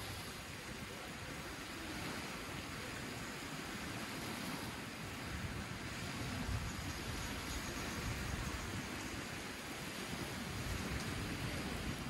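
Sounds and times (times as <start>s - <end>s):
waves washing onto beach: 0.0s - 12.0s
wind rumble: 3.7s - 12.0s.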